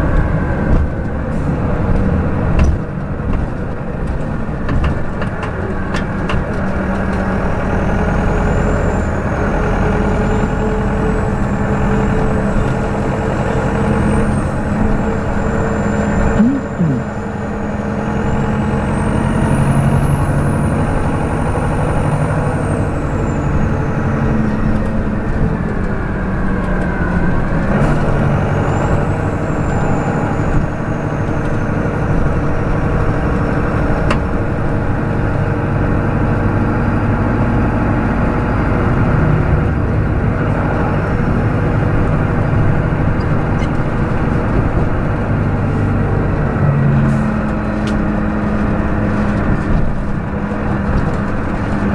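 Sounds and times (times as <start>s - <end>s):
diesel engine running: 0.0s - 51.9s
high engine whine: 7.2s - 33.6s.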